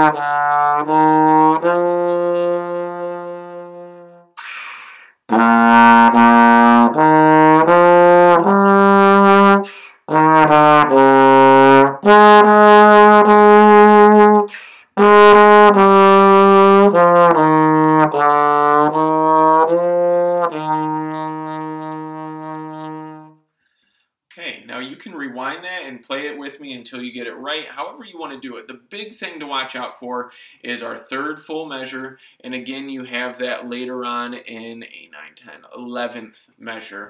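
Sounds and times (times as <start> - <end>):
trombone playing sustained notes: 0.0 - 4.3, 5.3 - 23.4
player breathing: 4.4 - 5.3, 9.7 - 10.1, 14.5 - 15.0, 23.5 - 24.2, 30.3 - 30.6, 32.2 - 32.4.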